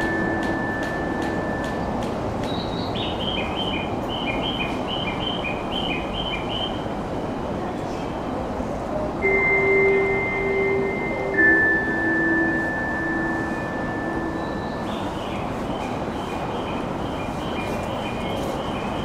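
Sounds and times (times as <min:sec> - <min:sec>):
station chime melody: 0:00.0 - 0:02.0, 0:09.2 - 0:15.0
two-note chirps: 0:00.0 - 0:02.0, 0:09.2 - 0:15.2.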